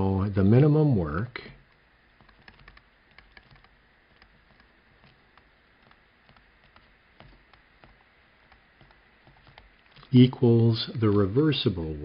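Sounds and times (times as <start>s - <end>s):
stylus tapping on tablet screen: 1.6s - 10.1s.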